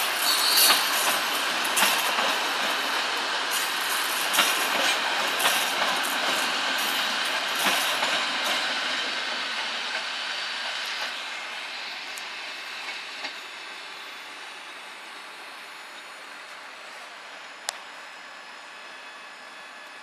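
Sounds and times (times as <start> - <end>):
wheels clicking over rail joints: 0.0 - 11.2
train wheels rolling on rails: 0.0 - 18.0.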